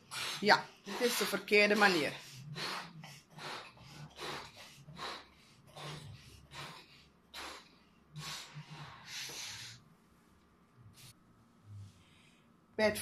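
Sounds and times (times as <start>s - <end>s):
breathy puffs blowing balloons: 0.0s - 9.9s.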